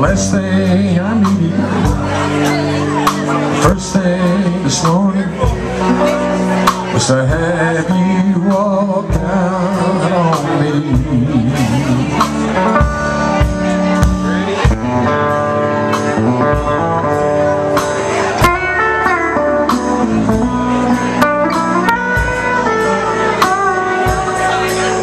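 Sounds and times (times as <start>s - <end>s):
electric guitar: 0.0s - 25.0s
pedal steel guitar: 0.0s - 25.0s
upright bass walking: 0.0s - 25.0s.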